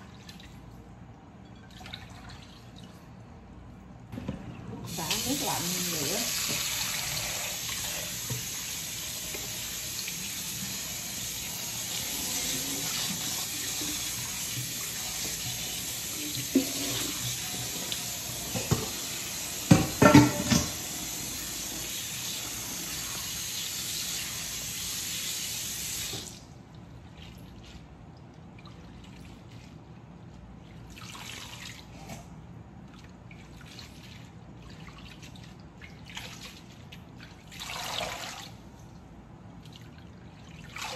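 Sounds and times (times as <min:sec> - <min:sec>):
tap running into sink: 0:12.4 - 0:20.9.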